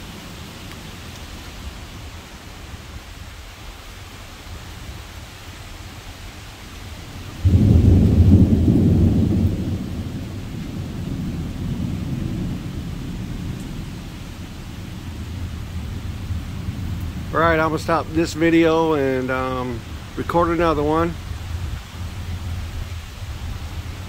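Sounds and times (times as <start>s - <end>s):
steady rain: 0.0s - 24.0s
thunder clap and rumble: 7.2s - 24.0s.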